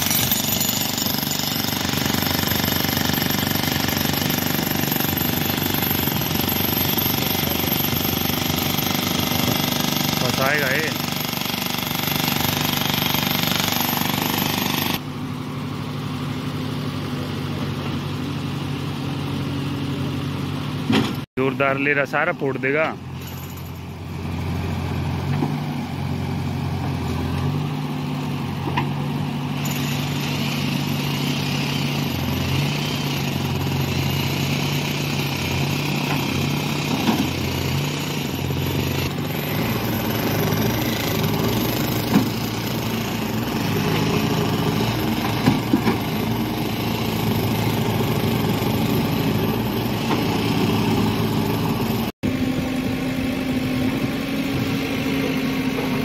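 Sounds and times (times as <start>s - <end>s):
diesel engine running under load: 0.0s - 56.0s.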